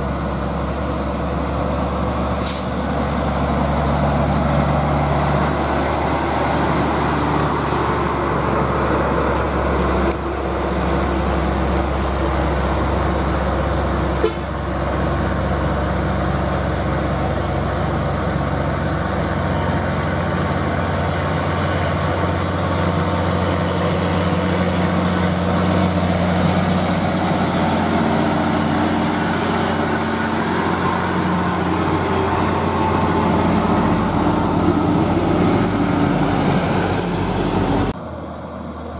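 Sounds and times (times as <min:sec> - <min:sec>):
diesel trucks driving past: 0:00.0 - 0:38.9.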